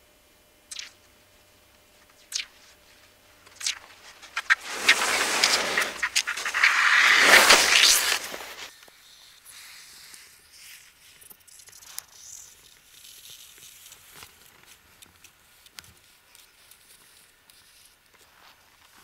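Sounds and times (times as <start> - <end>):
light hiss: 0.7 - 18.3
skis crunching on crusty snow: 3.5 - 9.2
loud swish: 4.4 - 8.7.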